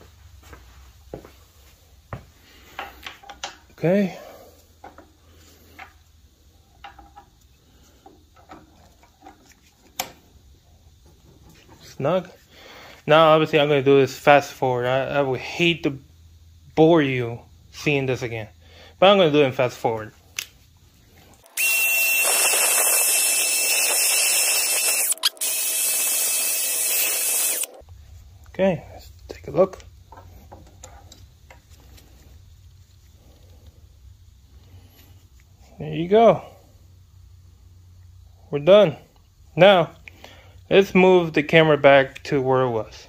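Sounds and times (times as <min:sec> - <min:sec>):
drill spinning wire brush: 0:21.4 - 0:27.8.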